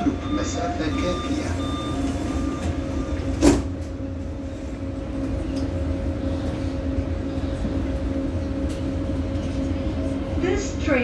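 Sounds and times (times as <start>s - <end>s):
train doors shutting with a thud: 0.0s - 4.1s
train rumble and hum: 0.0s - 11.0s.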